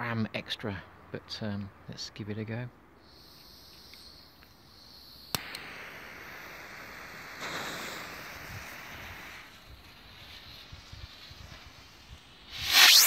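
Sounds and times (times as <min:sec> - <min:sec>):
firework rocket fizzing hiss: 0:03.0 - 0:13.0
sharp click: 0:05.3 - 0:05.7.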